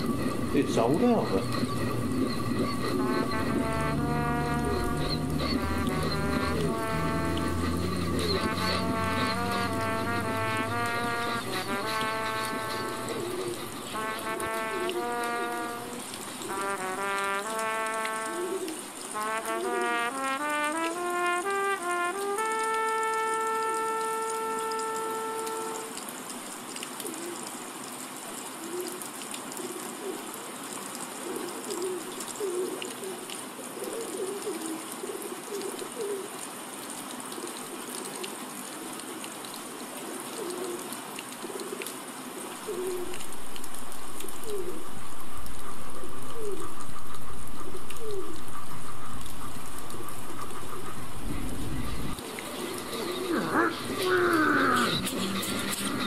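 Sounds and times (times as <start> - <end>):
voiced imitation of train rumble: 0.0 - 16.0, 50.6 - 56.0
faint hiss: 0.0 - 56.0
person imitating pigeons cooing: 11.8 - 14.2, 31.4 - 36.3, 40.3 - 40.9, 44.3 - 44.9, 52.8 - 55.5.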